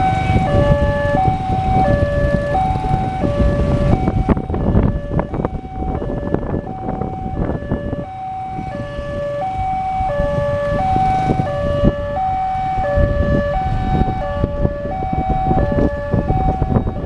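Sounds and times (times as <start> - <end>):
level-crossing two-tone alarm: 0.0 - 17.0.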